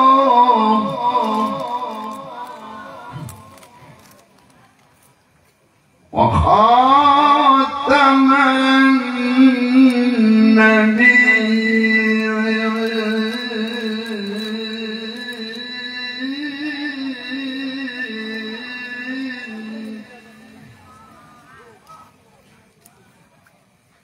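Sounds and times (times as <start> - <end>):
man chanting into microphone: 0.0 - 3.9, 6.1 - 21.3.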